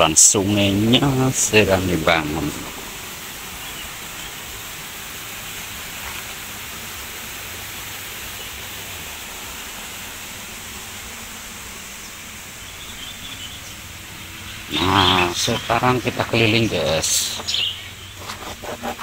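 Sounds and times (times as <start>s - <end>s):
water rushing through channel: 0.0s - 12.6s.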